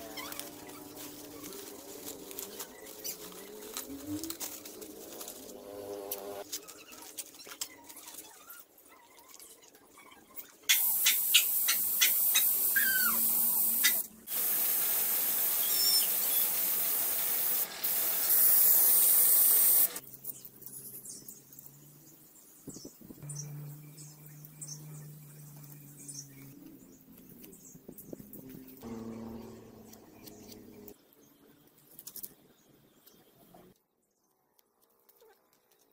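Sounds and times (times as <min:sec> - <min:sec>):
spray paint can hissing: 0:10.7 - 0:20.0.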